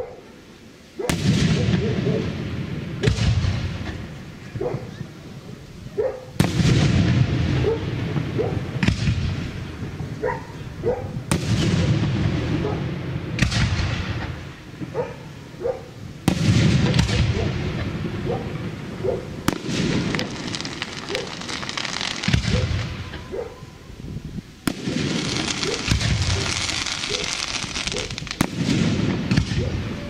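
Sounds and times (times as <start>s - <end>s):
firework crackling: 0.0s - 30.0s
firework shells bursting: 16.2s - 23.3s, 24.6s - 29.8s.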